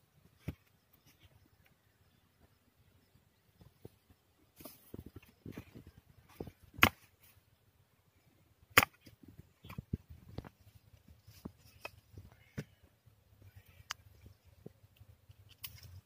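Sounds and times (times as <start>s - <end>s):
hoe striking branches: 6.4s - 7.2s, 8.7s - 9.1s.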